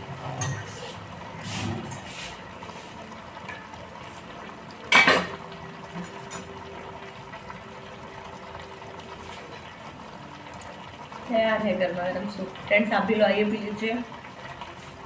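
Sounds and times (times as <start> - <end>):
dishes and utensils clattering: 0.2 - 1.0, 3.4 - 3.9, 4.9 - 6.6.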